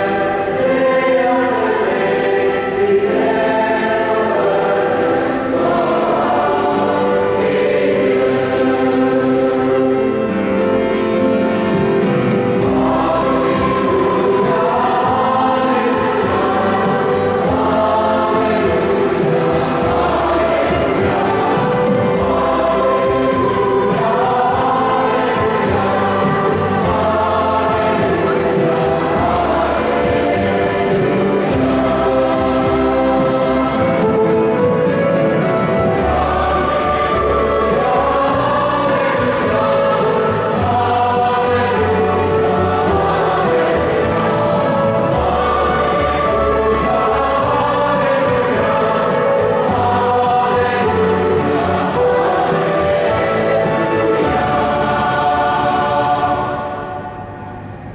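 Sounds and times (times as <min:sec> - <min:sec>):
instrumental accompaniment: 0:00.0 - 0:57.9
mixed choir singing: 0:00.0 - 0:57.9.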